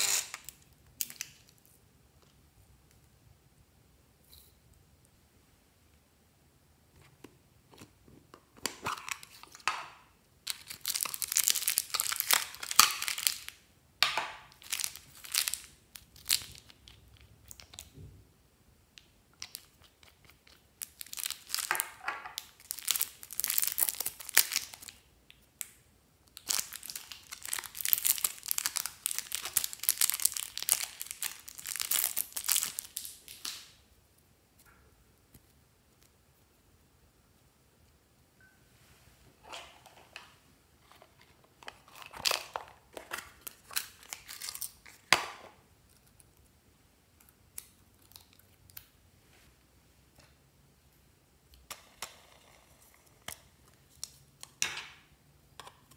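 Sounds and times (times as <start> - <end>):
plastic packet crinkling: 10.5 - 13.6, 14.4 - 16.9, 19.4 - 25.0, 26.4 - 33.7, 40.8 - 45.1.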